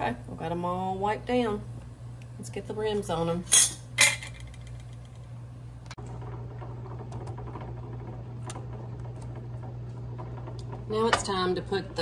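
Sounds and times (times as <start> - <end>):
steady low hum: 0.0 - 12.0
boiling water bubbling: 6.0 - 12.0.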